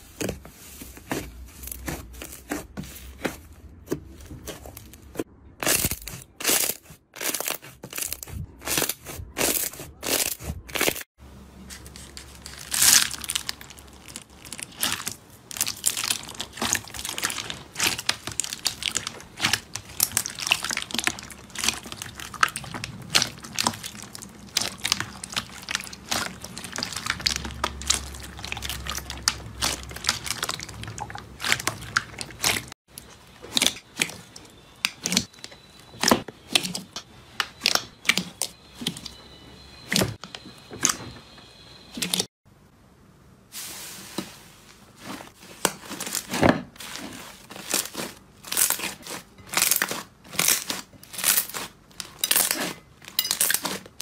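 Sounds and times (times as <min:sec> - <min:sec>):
slime with beads crackling: 0:05.6 - 0:11.1, 0:12.2 - 0:36.9, 0:45.0 - 0:54.0
hands squishing slime: 0:12.3 - 0:35.4, 0:45.3 - 0:54.0.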